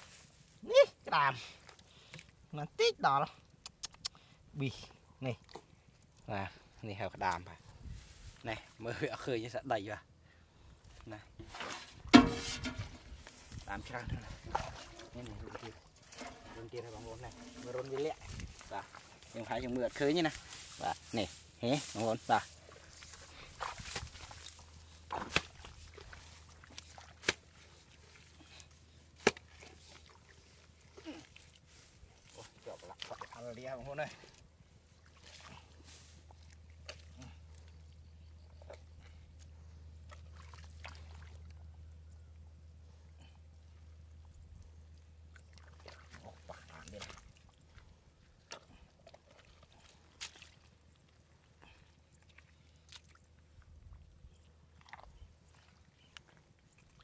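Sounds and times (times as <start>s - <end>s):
hands digging in mud: 16.0s - 33.4s
hoe chopping into wet earth: 25.1s - 25.6s.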